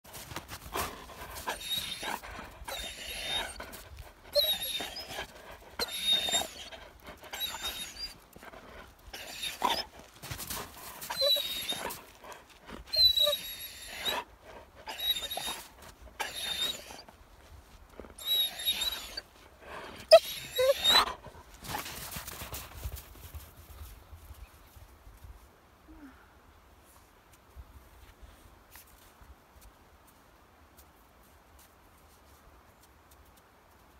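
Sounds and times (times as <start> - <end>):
dog whining and yelping: 0.8 - 8.4, 9.1 - 12.0, 12.8 - 17.0, 18.2 - 19.2, 20.0 - 21.9.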